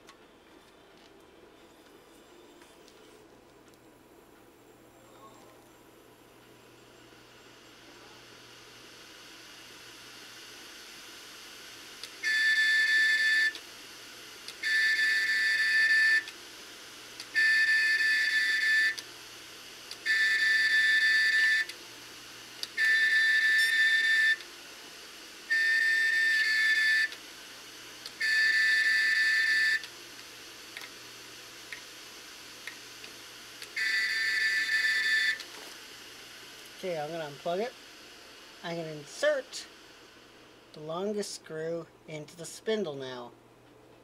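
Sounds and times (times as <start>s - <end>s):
hard drive whistling: 12.2s - 13.6s, 14.6s - 16.3s, 17.3s - 19.0s, 20.0s - 21.8s, 22.7s - 24.4s, 25.5s - 27.2s, 28.2s - 29.9s, 33.7s - 35.5s.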